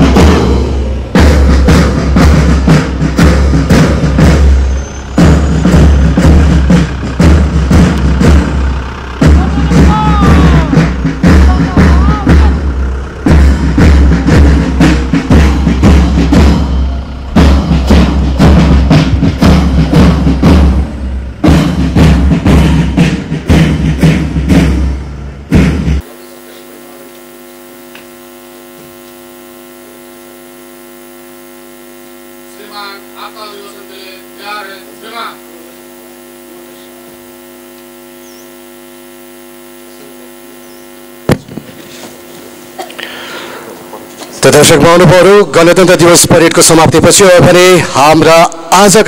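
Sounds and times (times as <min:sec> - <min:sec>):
marching band drums: 0:00.0 - 0:49.0
faint voices: 0:08.8 - 0:13.3
electrical mains hum: 0:26.0 - 0:45.4.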